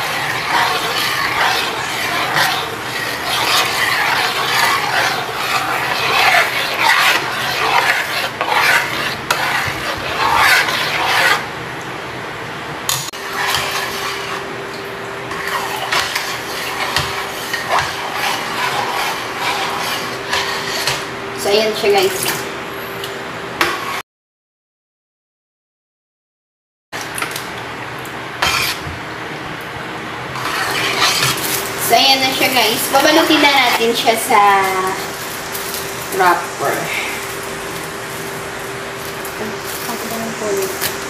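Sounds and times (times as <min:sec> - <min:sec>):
ladle scraping a steel pot: 0:00.0 - 0:11.5, 0:13.2 - 0:14.5, 0:15.3 - 0:21.1, 0:28.4 - 0:28.8, 0:30.4 - 0:38.3.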